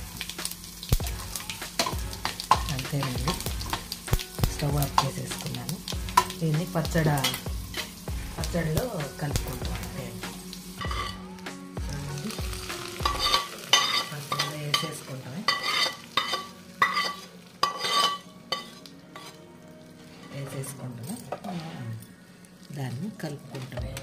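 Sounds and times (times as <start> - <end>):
hot oil sizzling: 0.0 - 24.0
metal spoon scraping pan: 10.8 - 11.2, 13.0 - 19.4, 20.0 - 22.1.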